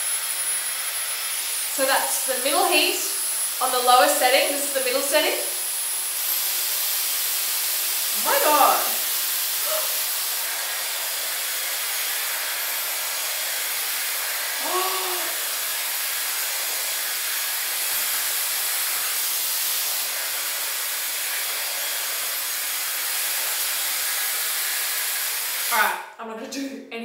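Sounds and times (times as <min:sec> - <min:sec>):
hair styler blowing air: 0:00.0 - 0:25.9
short voiced sound: 0:09.6 - 0:10.0, 0:14.6 - 0:15.4.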